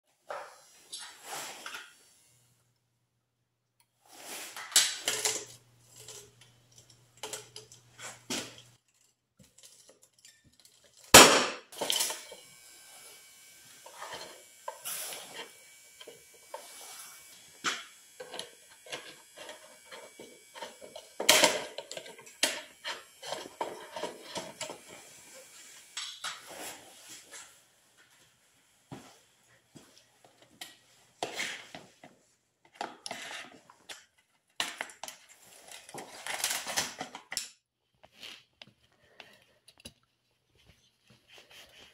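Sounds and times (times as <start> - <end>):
metal and plastic clinking: 4.6 - 12.4.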